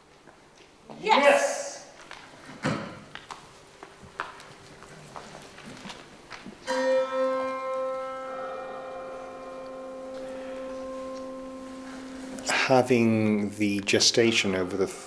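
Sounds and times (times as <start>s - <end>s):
struck ringing musical note: 6.6s - 15.0s.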